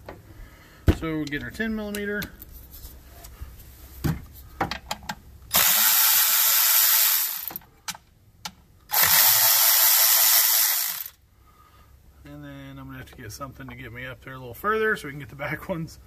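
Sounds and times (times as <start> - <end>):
electric ratchet spinning: 5.5 - 7.6, 8.9 - 11.2.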